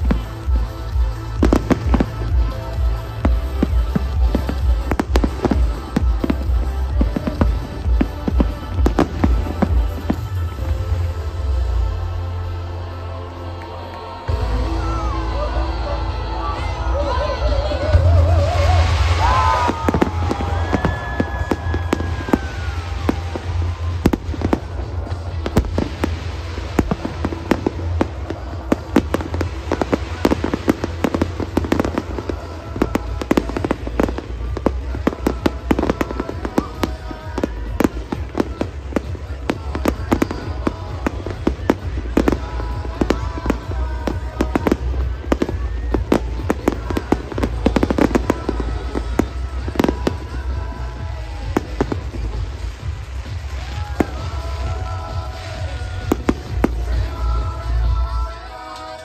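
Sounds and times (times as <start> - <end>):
fireworks bursting: 0.0 - 59.0
loud music: 0.0 - 59.0.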